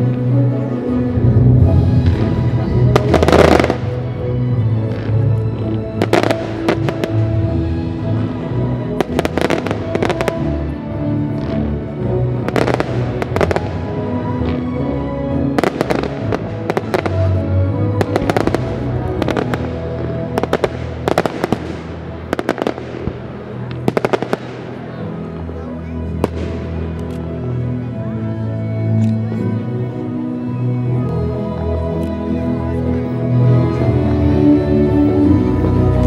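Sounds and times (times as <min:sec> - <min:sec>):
music playing: 0:00.0 - 0:36.0
fireworks bangs: 0:01.9 - 0:04.0, 0:06.0 - 0:07.4, 0:09.0 - 0:10.5, 0:12.4 - 0:14.7, 0:15.6 - 0:17.4, 0:18.0 - 0:25.0.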